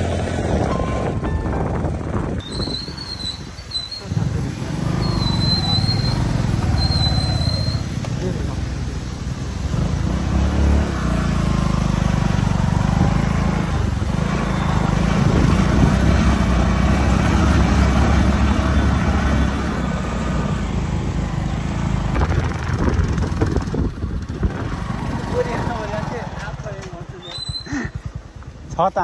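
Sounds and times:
road noise: 0.0 - 29.0
motorcycle engine running: 9.6 - 29.0.

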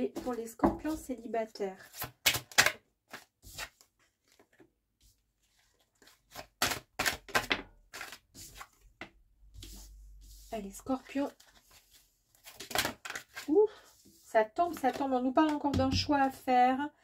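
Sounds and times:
cards being shuffled: 1.8 - 4.6, 5.5 - 9.8, 11.0 - 13.5.

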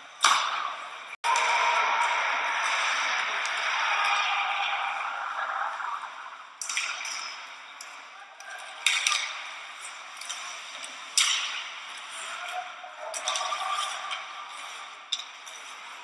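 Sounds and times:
hockey sticks hitting puck: 0.0 - 16.0.

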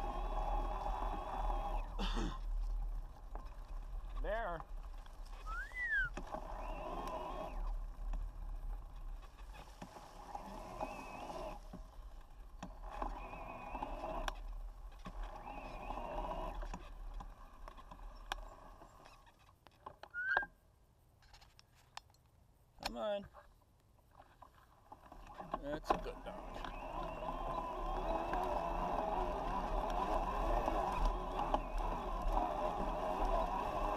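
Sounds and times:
bike tyre and drivetrain noise: 0.0 - 20.4, 23.3 - 33.9.

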